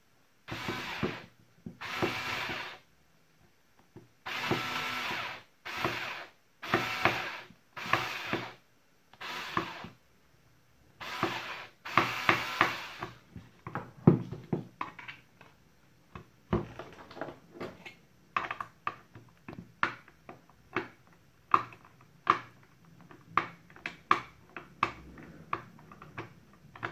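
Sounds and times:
electric screwdriver whirring: 0.5s - 1.2s, 1.8s - 2.8s, 4.3s - 8.6s, 9.2s - 9.9s, 11.0s - 13.2s.

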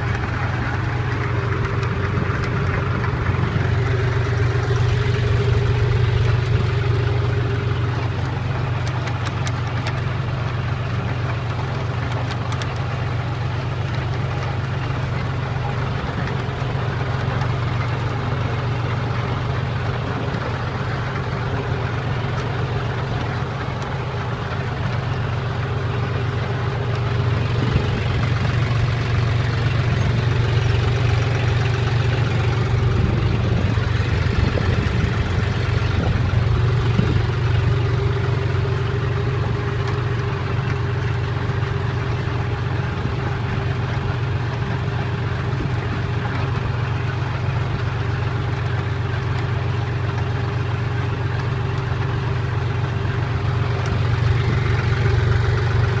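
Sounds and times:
constant higher hum: 0.0s - 56.0s
tractor engine running: 0.0s - 56.0s.

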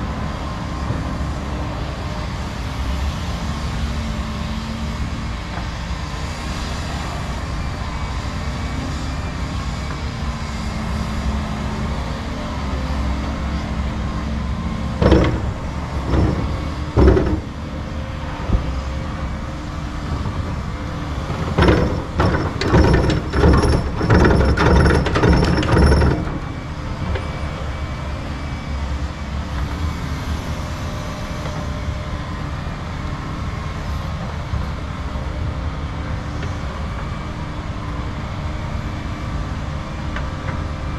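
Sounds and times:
distant diesel engines droning: 0.0s - 40.9s
sharp knocks: 15.0s - 17.6s, 21.3s - 26.4s
excavator bucket clanks: 15.0s - 17.7s, 20.1s - 26.6s.

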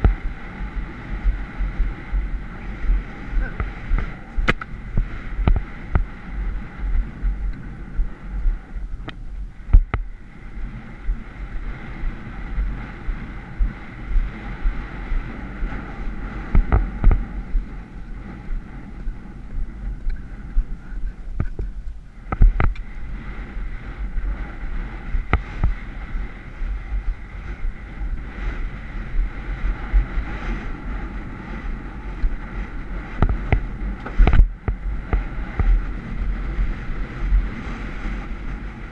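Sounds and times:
galloping hooves thudding: 0.0s - 10.2s, 11.1s - 38.9s
wind buffeting microphone: 0.0s - 38.9s.

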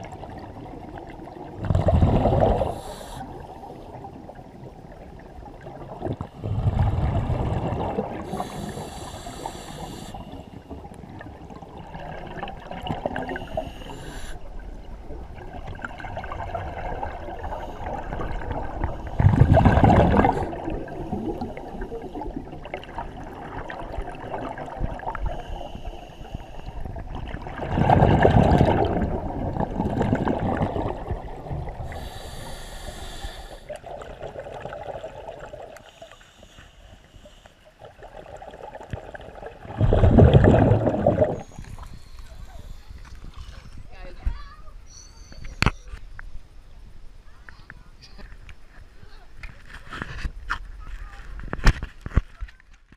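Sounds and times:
gurgling exhaled bubbles: 0.0s - 25.9s, 26.6s - 35.9s, 37.8s - 43.8s
hissing regulator inhales: 2.4s - 3.5s, 8.2s - 10.6s, 13.3s - 14.5s, 25.2s - 26.9s, 31.8s - 33.8s, 35.8s - 37.6s, 41.4s - 43.7s.

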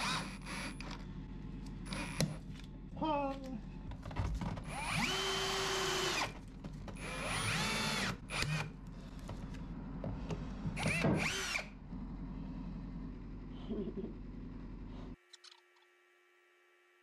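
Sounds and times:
cordless drill driving screws: 0.0s - 1.0s, 1.9s - 2.3s, 4.7s - 6.4s, 7.0s - 8.7s, 10.8s - 11.7s.

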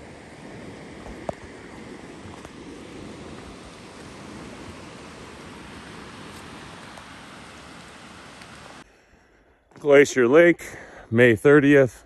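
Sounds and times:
river water rushing: 0.0s - 8.8s.

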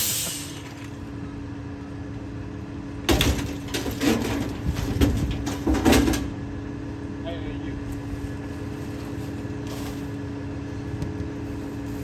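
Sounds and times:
garbage truck engine humming: 0.0s - 12.0s
metal clanks and knocks: 3.1s - 6.4s.

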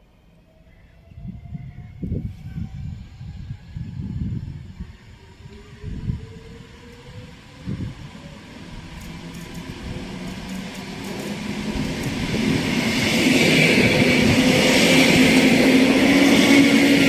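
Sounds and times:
train wheels rumbling on rails: 0.4s - 17.0s
train motor hum: 3.4s - 17.0s.

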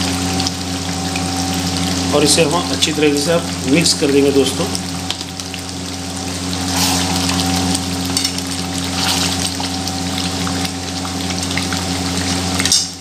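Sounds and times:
curry sizzling and bubbling: 0.0s - 13.0s
steady low hum: 0.0s - 13.0s
metal spatula scraping a pan: 6.7s - 7.5s.

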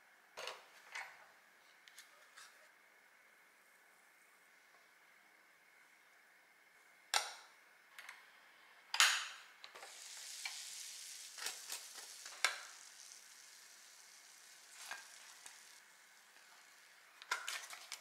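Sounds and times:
soft sizzle in waffle iron: 9.6s - 18.0s.

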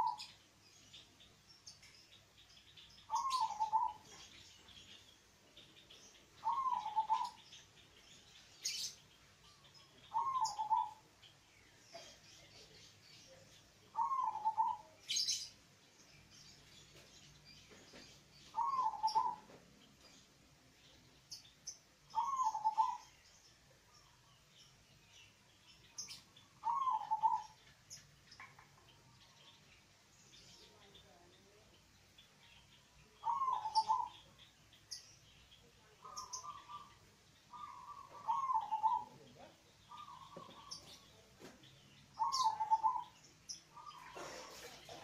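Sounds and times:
dove cooing: 0.0s - 0.3s, 3.1s - 4.1s, 6.4s - 7.4s, 10.1s - 11.0s, 13.9s - 14.9s, 18.5s - 19.6s, 22.1s - 23.0s, 26.6s - 27.6s, 33.2s - 34.1s, 37.5s - 39.2s, 40.0s - 40.8s, 42.2s - 43.1s
faint high chirping: 0.0s - 45.0s.

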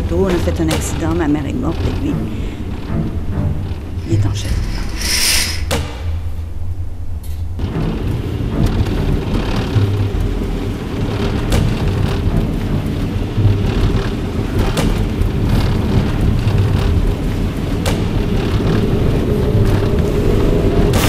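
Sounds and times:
car engine and road noise: 5.7s - 21.0s.

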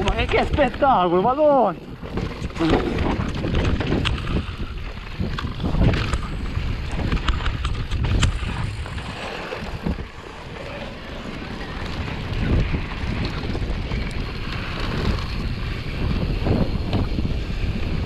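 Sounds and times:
bike frame rattling and knocking: 0.0s - 10.1s
tyres rolling over dirt: 0.0s - 18.0s
wind buffeting the microphone: 0.0s - 18.0s.

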